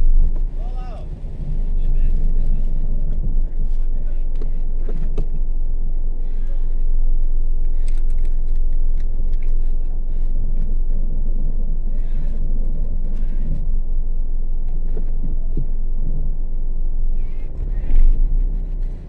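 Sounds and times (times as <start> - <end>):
car engine and tyre rumble: 0.0 - 19.0.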